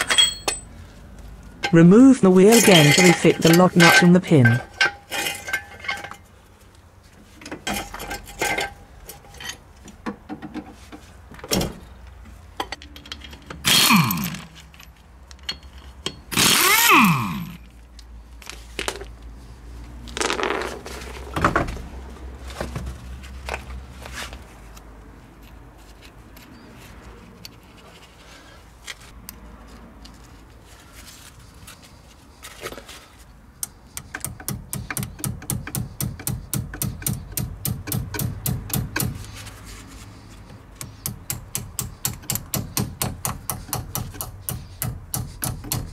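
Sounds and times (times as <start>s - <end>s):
hand tools clanking: 0.0s - 0.7s, 1.6s - 6.3s, 7.4s - 10.6s.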